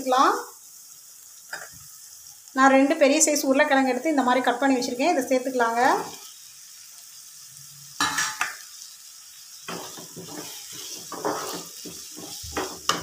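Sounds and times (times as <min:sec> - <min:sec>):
potatoes sizzling in oil: 0:00.0 - 0:13.0
wooden spatula scraping pan: 0:09.7 - 0:13.0.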